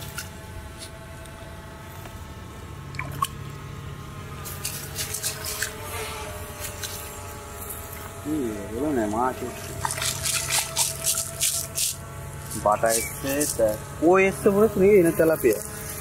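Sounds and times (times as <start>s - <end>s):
faint steady hum: 0.0s - 16.0s
water dripping and squelching: 2.9s - 3.4s, 9.5s - 12.0s
small splashes: 2.9s - 3.5s, 9.5s - 12.0s.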